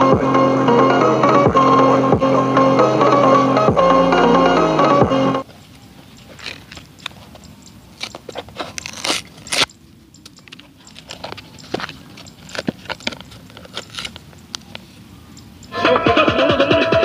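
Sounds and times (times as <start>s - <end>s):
music from a speaker: 0.0s - 5.4s, 15.7s - 17.0s
cardboard crackling and scraping: 5.4s - 15.0s.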